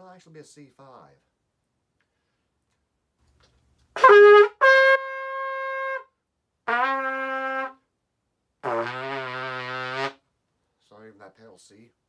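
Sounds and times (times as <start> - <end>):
trumpet playing single notes: 4.0 - 7.8, 8.6 - 10.2.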